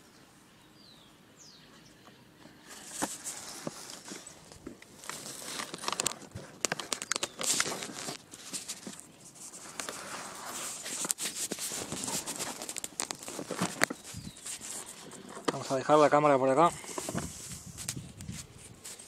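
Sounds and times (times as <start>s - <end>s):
phone handling rustling: 2.9s - 10.1s, 10.8s - 15.7s, 16.8s - 18.0s.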